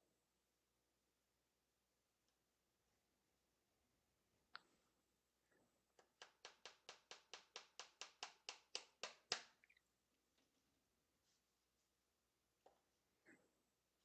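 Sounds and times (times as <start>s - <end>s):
hammer tapping nail into wood: 6.0s - 9.6s.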